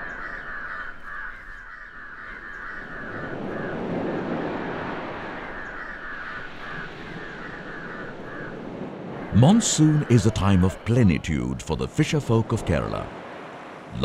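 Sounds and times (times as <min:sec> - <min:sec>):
crows cawing: 0:00.0 - 0:04.3, 0:05.0 - 0:10.8
surf washing: 0:02.8 - 0:14.0.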